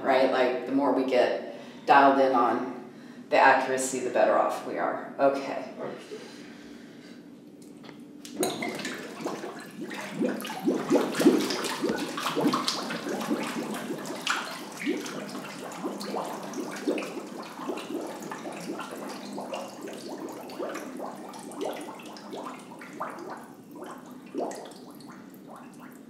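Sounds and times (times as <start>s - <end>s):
water sloshing in a tank: 7.6s - 26.0s
underwater breath bubbling: 8.5s - 25.8s.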